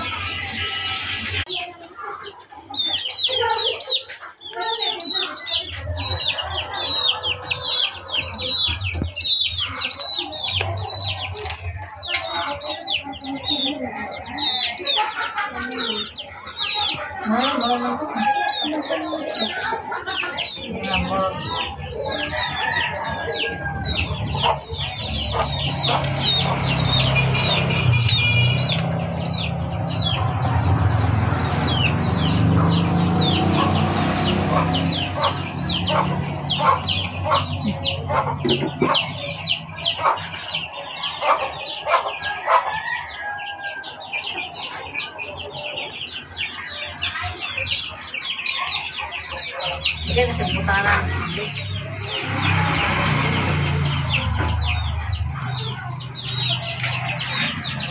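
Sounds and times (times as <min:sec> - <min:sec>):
chickens chirping and clucking: 0:00.0 - 0:57.9.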